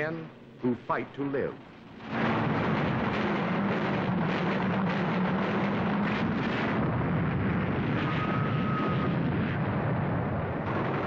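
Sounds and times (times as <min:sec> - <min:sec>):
warplane engine drone: 0:00.0 - 0:11.0
anti-aircraft fire: 0:01.5 - 0:11.0.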